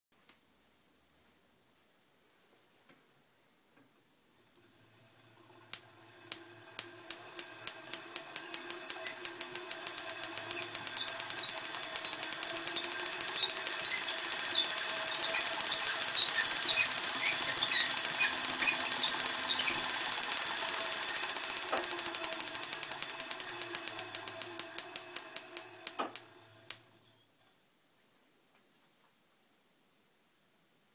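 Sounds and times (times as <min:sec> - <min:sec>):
hand-cranked machine ticking: 0:05.7 - 0:26.8.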